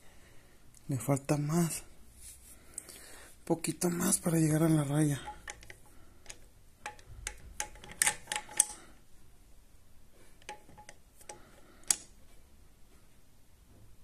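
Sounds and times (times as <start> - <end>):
tools clicking on metal: 5.1 - 9.0.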